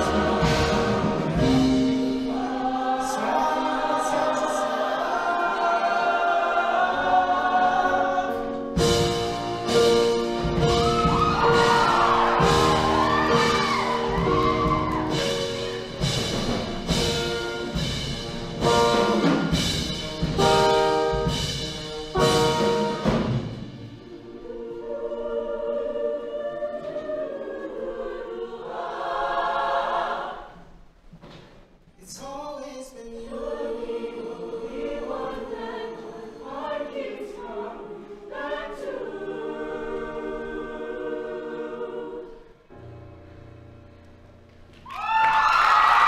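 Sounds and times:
choir singing held chords: 0.0s - 31.0s, 33.0s - 43.7s
audience cheering: 10.6s - 15.8s, 44.8s - 46.0s.

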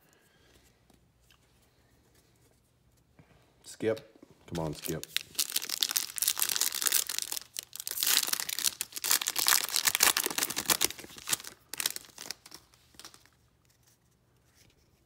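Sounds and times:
foil wrapper tearing and crinkling: 4.8s - 13.4s.

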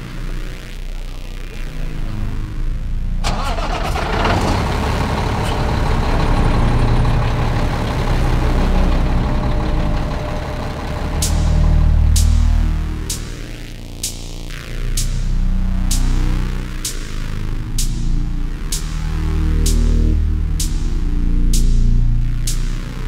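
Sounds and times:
truck diesel engine starting: 3.2s - 13.8s
diesel engine idling: 3.2s - 14.0s.

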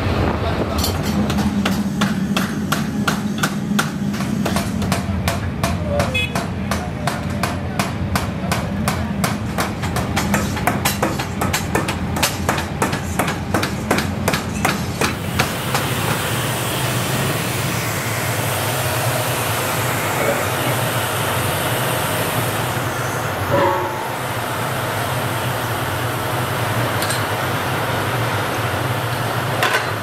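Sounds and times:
workshop machinery noise: 0.0s - 30.0s
sharp metal knocks: 0.8s - 16.2s, 23.5s - 24.4s.

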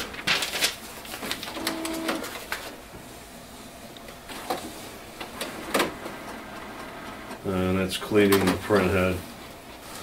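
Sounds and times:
printer mechanical whir: 1.0s - 3.0s, 3.7s - 10.0s.

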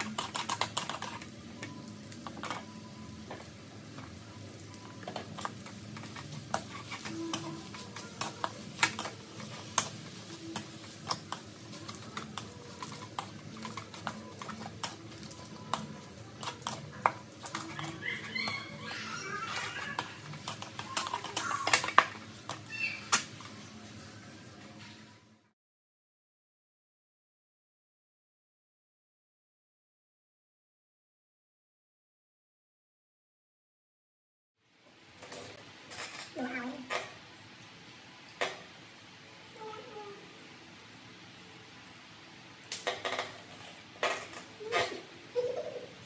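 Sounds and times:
spatula scraping a metal wok: 0.0s - 1.3s, 5.3s - 22.6s.

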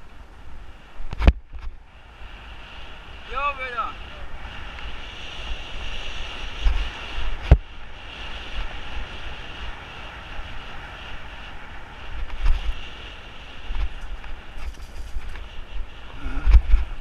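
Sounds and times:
wind buffeting microphone: 0.0s - 17.0s
bike tyres rolling on rough road: 4.1s - 17.0s.

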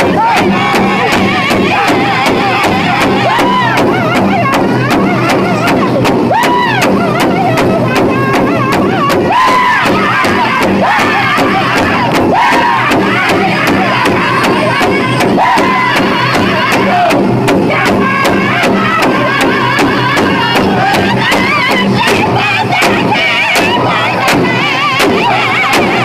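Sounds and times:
large drum beaten fast: 0.0s - 26.0s
men singing in high voices: 0.0s - 26.0s.

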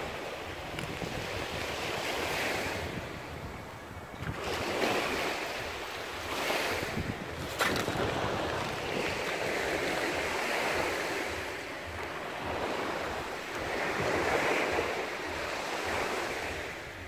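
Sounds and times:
surf washing onto beach: 4.2s - 17.0s.

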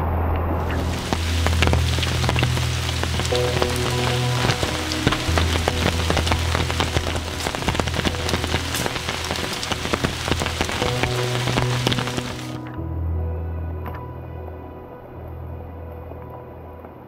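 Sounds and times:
rain drops striking surface: 0.3s - 12.8s.

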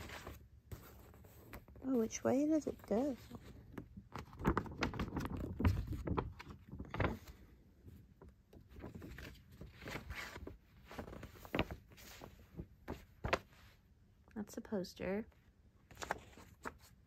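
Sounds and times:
paper crinkling and rustling: 0.0s - 7.6s, 8.2s - 13.6s, 15.9s - 17.0s
sharp paper crackles: 2.8s - 7.4s.

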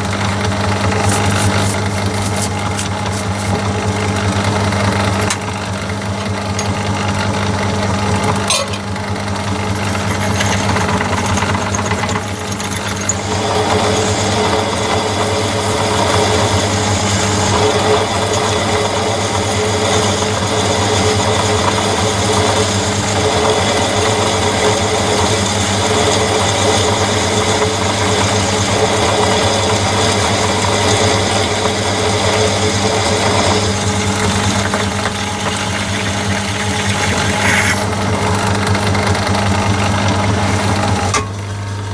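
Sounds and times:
lathe motor hum: 0.0s - 41.9s
drill cutting into steel: 9.5s - 38.0s.

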